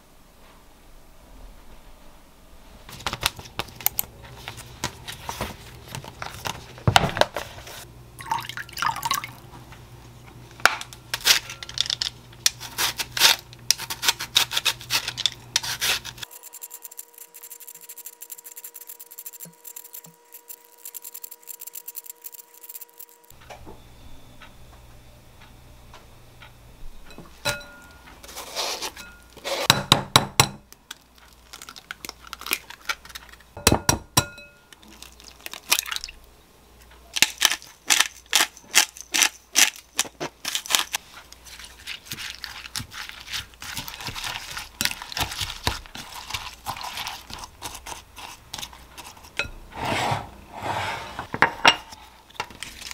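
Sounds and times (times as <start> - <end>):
peeler rasping cabbage: 11.2 - 23.3, 28.2 - 29.7, 37.2 - 51.0.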